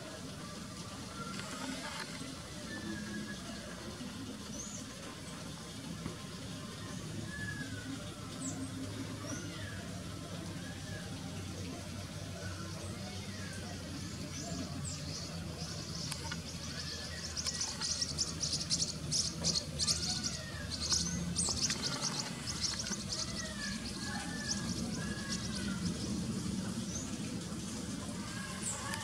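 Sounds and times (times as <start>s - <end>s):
birds chirping and whistling: 12.5s - 29.0s
rapid high-pitched bird calls: 15.8s - 27.2s.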